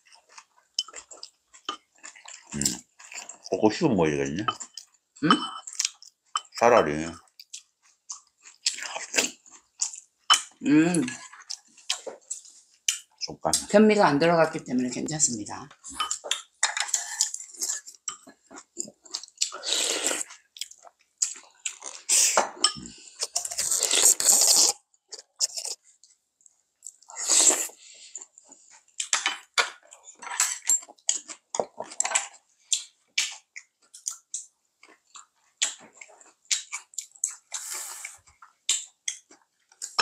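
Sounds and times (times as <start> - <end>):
chopsticks and spoons clicking bowls: 0.0 - 2.4, 4.4 - 6.6, 9.8 - 13.7, 15.9 - 18.4, 29.0 - 34.5
chewing and crunching food: 0.0 - 13.8, 15.1 - 40.0
slurping noises: 19.4 - 20.4, 21.7 - 25.8, 27.0 - 28.2, 37.4 - 38.3.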